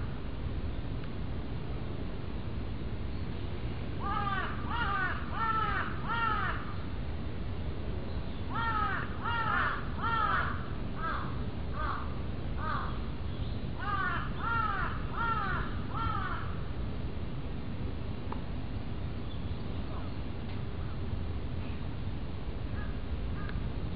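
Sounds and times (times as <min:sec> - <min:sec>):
low background rumble: 0:00.0 - 0:23.9
crow cawing: 0:04.0 - 0:06.8, 0:08.5 - 0:13.0, 0:13.8 - 0:16.6.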